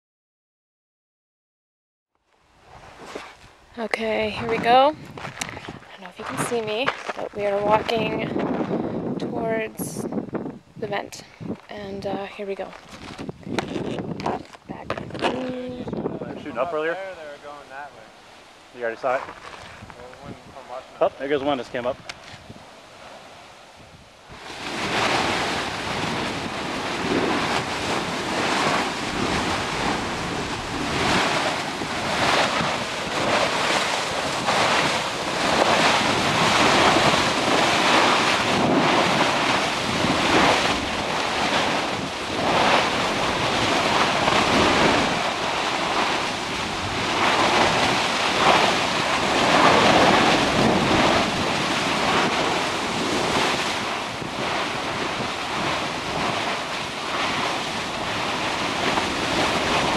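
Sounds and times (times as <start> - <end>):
molten lava spattering and churning: 4.2 - 9.2, 12.7 - 16.9, 19.2 - 20.7, 24.3 - 59.9.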